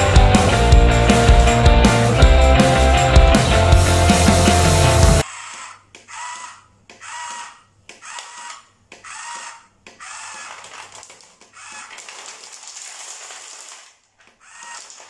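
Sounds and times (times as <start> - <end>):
toy truck lift mechanism whirring: 5.2 - 12.2, 13.6 - 15.0
stones sliding into plastic basket: 10.5 - 15.0.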